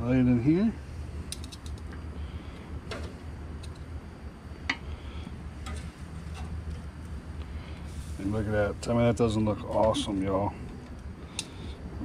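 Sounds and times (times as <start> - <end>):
steady low hum: 0.0 - 12.0
metal tongs clicking on grill grate: 1.3 - 1.9, 10.8 - 11.5.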